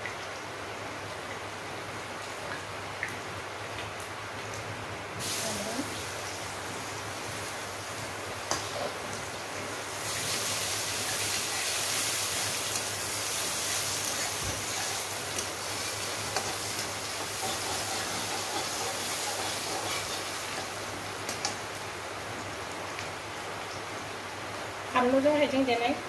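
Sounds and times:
food sizzling in a wok: 5.2 - 23.9
metal spatula scraping wok: 13.7 - 20.8.

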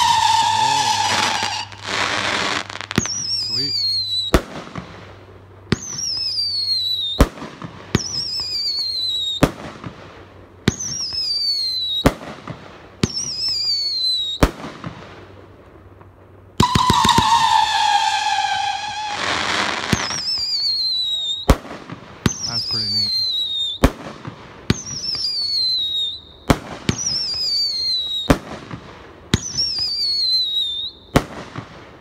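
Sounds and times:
firework whistle falling in pitch: 0.0 - 4.4, 8.0 - 9.5, 10.7 - 12.2, 13.0 - 14.4, 16.6 - 21.6, 22.3 - 23.9, 24.7 - 26.3, 26.9 - 28.4, 29.4 - 31.3
firework shots cracking: 0.0 - 15.2, 16.6 - 32.0
crackling firework burst: 0.0 - 32.0.

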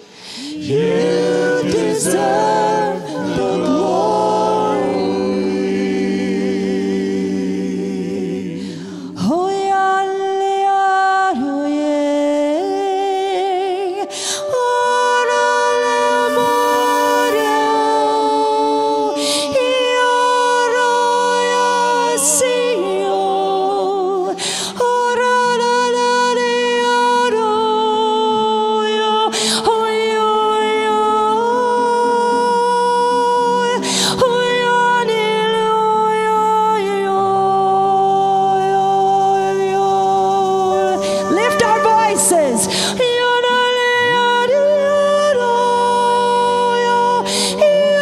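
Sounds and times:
person singing slow worship song: 0.0 - 48.0.

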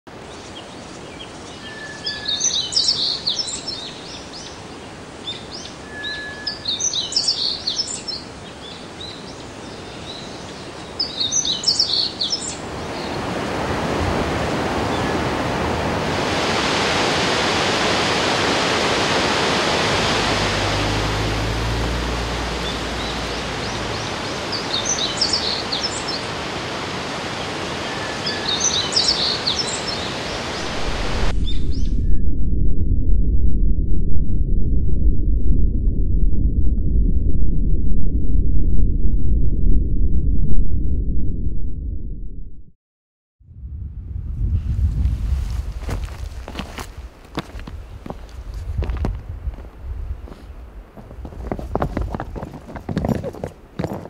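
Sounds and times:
bird chirping: 0.3 - 4.6, 5.2 - 13.2, 22.2 - 26.3, 27.8 - 30.7
waterfall rushing: 12.3 - 31.3.

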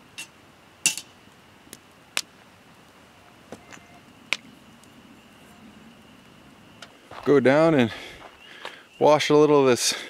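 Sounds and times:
faint high-pitched tone: 3.1 - 7.7.

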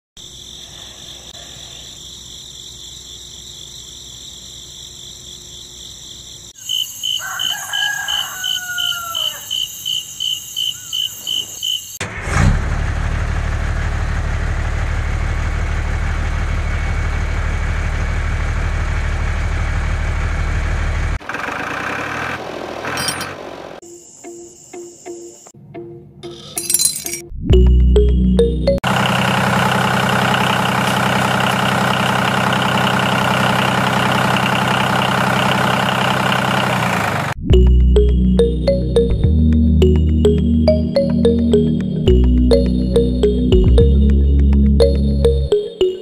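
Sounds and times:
insects trilling and chirping: 0.2 - 12.0, 23.8 - 25.5
rooster crowing: 6.7 - 9.7
engine rumble: 12.0 - 23.8, 27.6 - 39.2
clinks: 22.9 - 23.4, 26.4 - 27.3.

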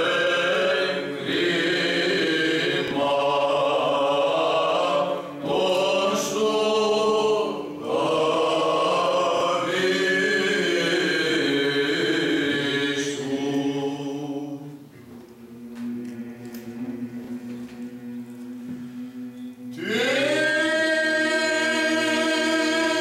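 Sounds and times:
men chanting a slow melody: 15.7 - 23.0.

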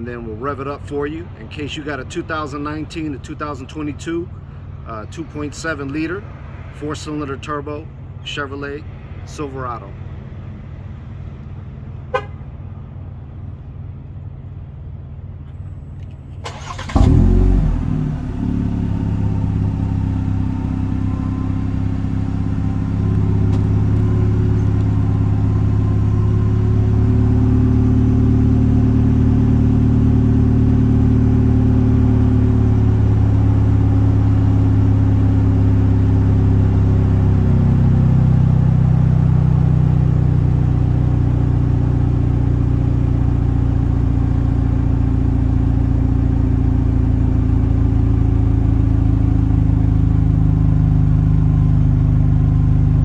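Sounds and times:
engine exhaust idling: 0.0 - 8.4, 10.3 - 53.0
engine cranking and starting: 16.3 - 17.6
engine revving: 16.5 - 42.6.

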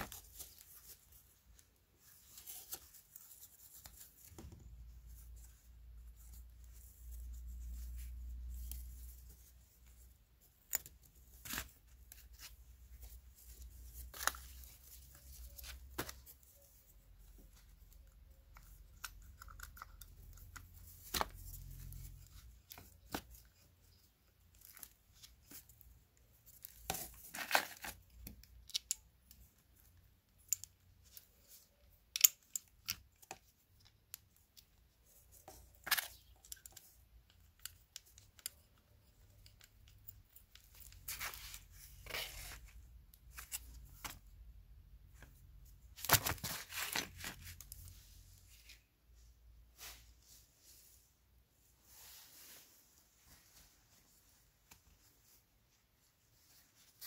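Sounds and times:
cardboard and glove rustling: 0.0 - 28.4, 40.1 - 49.0.

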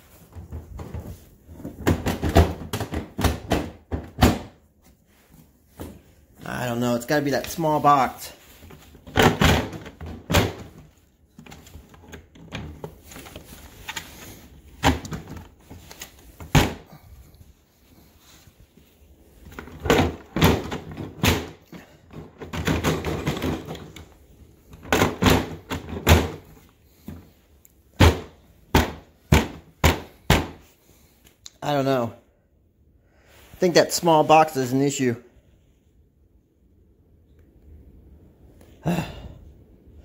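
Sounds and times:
plastic tool boxes clunking: 0.0 - 6.2, 7.3 - 30.7.

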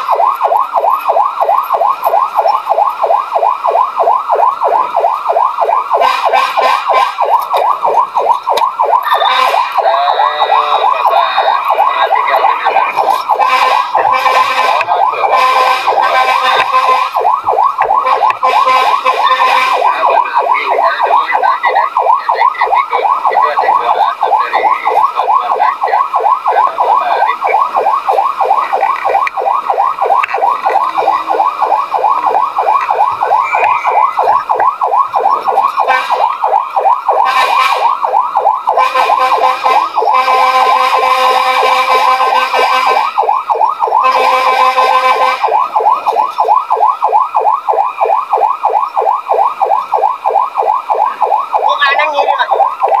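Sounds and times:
fire truck siren yelping: 0.0 - 53.0
horn blasts: 6.0 - 7.2, 9.1 - 9.7, 13.4 - 17.2, 18.0 - 19.9, 37.2 - 38.0, 38.8 - 43.1, 44.0 - 45.5.

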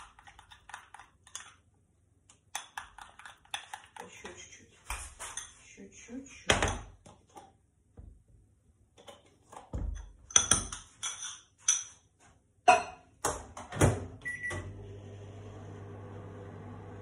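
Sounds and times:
microwave humming: 13.7 - 17.0.

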